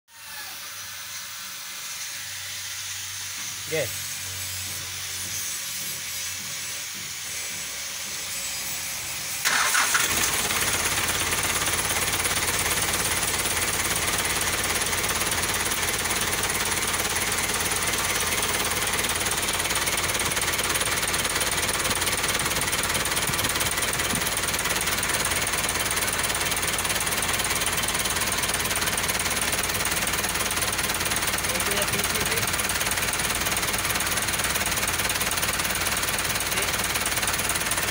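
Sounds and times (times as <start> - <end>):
diesel engine starting and idling: 9.2 - 37.9.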